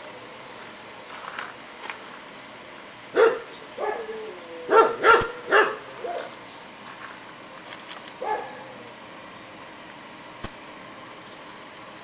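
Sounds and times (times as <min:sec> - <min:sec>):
dog barking: 0:03.1 - 0:04.1, 0:04.7 - 0:06.3, 0:08.2 - 0:08.7.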